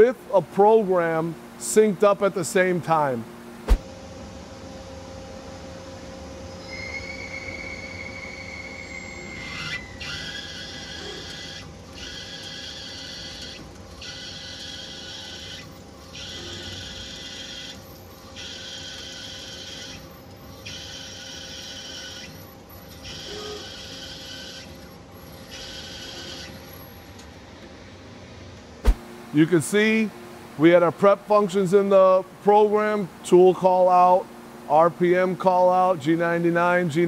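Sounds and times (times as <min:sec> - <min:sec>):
machine humming with high whine: 0:00.0 - 0:37.0
drill cutting in pecks: 0:09.3 - 0:17.8, 0:18.4 - 0:26.6.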